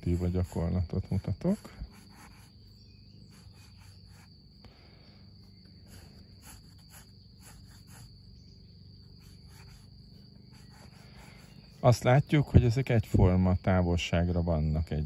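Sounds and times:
pencil scratching on paper: 0.0s - 4.4s, 5.8s - 8.3s, 9.0s - 12.1s
high-pitched insect drone: 0.0s - 15.0s.

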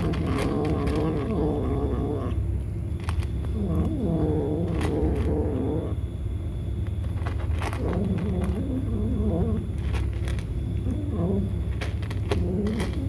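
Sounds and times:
kitten crunching dry kibble: 0.0s - 2.3s, 2.9s - 5.9s, 6.8s - 13.0s
kitten murmuring: 0.0s - 2.4s, 3.5s - 6.0s, 7.8s - 10.0s, 10.8s - 13.0s.

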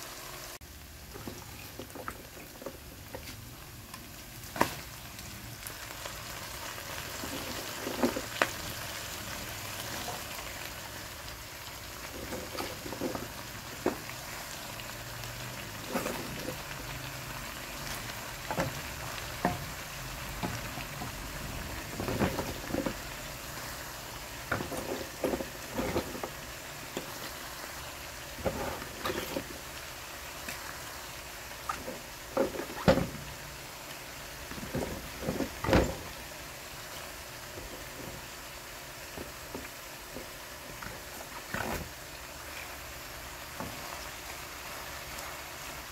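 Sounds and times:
greens sizzling in a pan: 0.0s - 45.9s.

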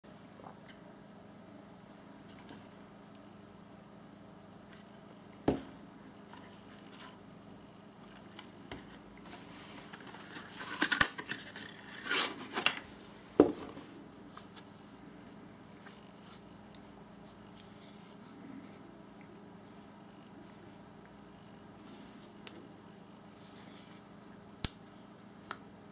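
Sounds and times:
cardboard and paper rustling: 8.0s - 15.0s.

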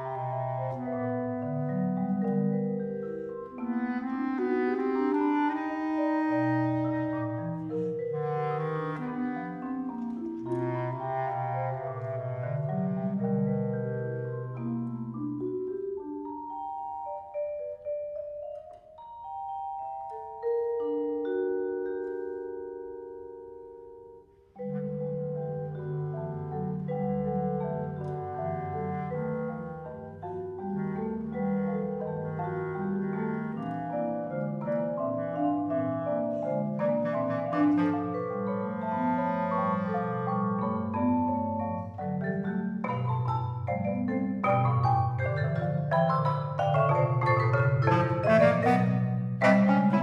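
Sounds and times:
marimba and vibraphone mallet lines: 0.0s - 50.0s
bass clarinet held notes: 3.7s - 9.7s, 36.3s - 40.4s, 47.8s - 50.0s.

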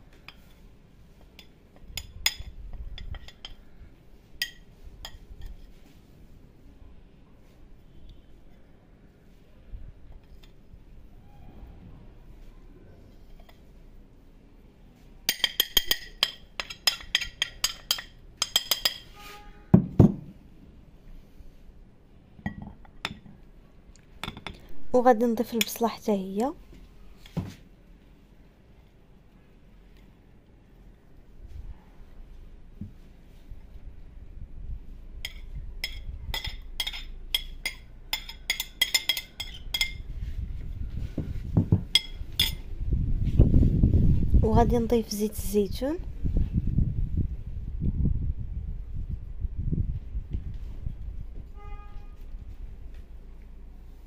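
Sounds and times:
spoon clinking on ceramic dish: 15.3s - 19.1s, 35.2s - 40.0s, 41.9s - 42.6s
loud dull knocks: 19.7s - 20.3s.

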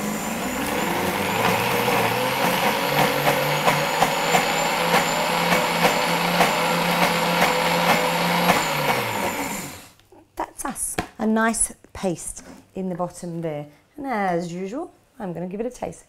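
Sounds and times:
blender running: 0.0s - 10.0s.

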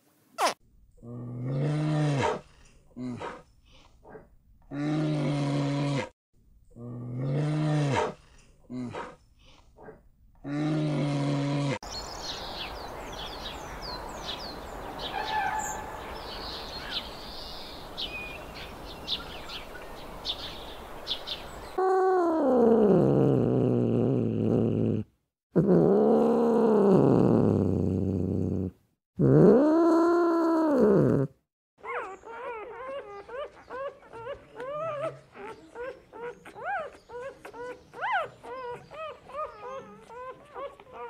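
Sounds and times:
background noise: 0.0s - 41.0s
birds chirping: 11.8s - 21.8s.

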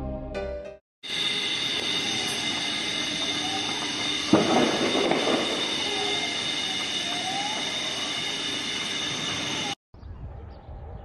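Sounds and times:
high-pitched whine: 1.0s - 9.8s
loud bang with crackle: 3.2s - 7.8s.

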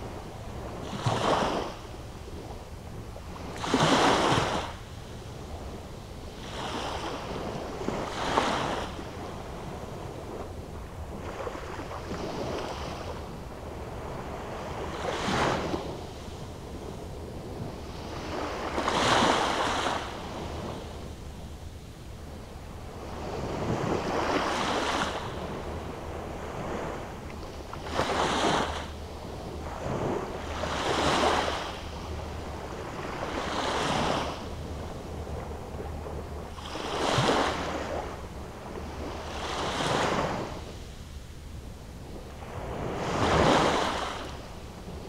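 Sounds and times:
waves breaking on sandy shore: 0.0s - 21.5s, 22.2s - 45.0s
steady low rumble: 34.3s - 39.4s.

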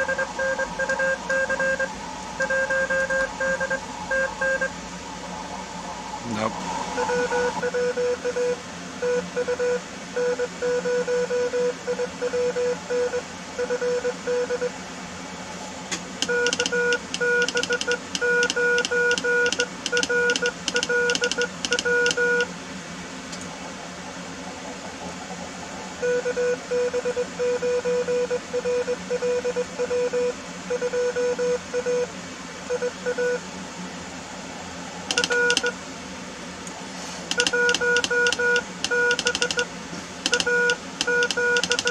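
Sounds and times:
morse code tone: 0.0s - 4.7s, 7.0s - 14.7s, 16.2s - 22.5s, 26.0s - 32.1s, 32.7s - 33.4s, 35.1s - 35.8s, 37.3s - 39.7s, 40.3s - 41.9s
radio band hiss: 0.0s - 8.6s
telegraph key clicks: 35.1s - 35.7s, 37.3s - 39.6s, 40.2s - 41.9s.

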